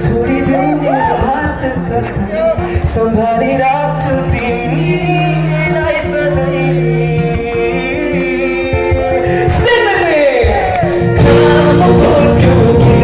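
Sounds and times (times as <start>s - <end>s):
acoustic guitar: 0.0s - 13.0s
electric bass: 0.0s - 13.0s
keyboard: 0.0s - 13.0s
man singing lead: 0.0s - 13.0s
drum kit: 8.6s - 13.0s.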